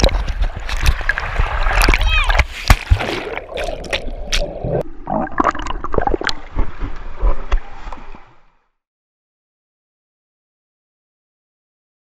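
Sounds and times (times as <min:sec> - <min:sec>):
water gurgling and splashing: 0:00.0 - 0:08.4.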